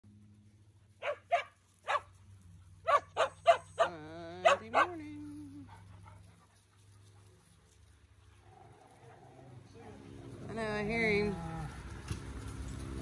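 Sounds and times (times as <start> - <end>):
dogs barking: 1.0 - 2.2, 2.8 - 5.0.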